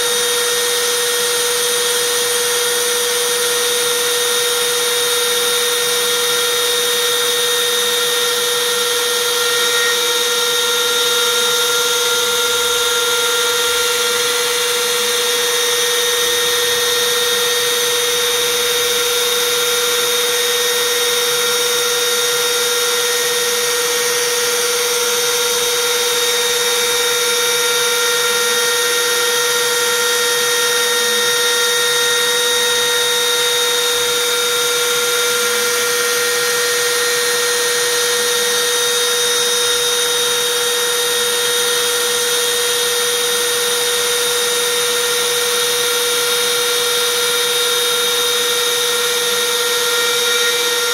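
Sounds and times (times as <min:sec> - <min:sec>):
router spindle whining: 0:00.0 - 0:50.9.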